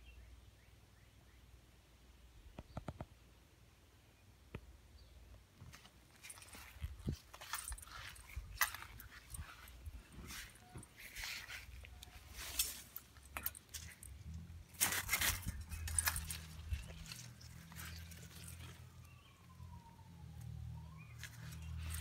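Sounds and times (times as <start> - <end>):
leaves rustling: 5.6 - 22.0.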